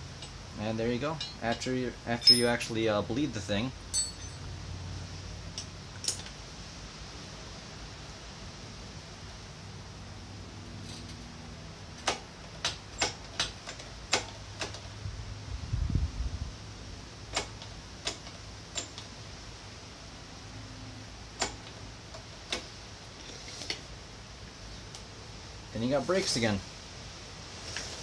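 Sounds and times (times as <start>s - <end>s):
low steady hum: 0.0s - 12.0s
tools clicking and knocking: 1.2s - 2.7s, 3.9s - 4.4s, 6.0s - 6.4s, 12.0s - 14.8s.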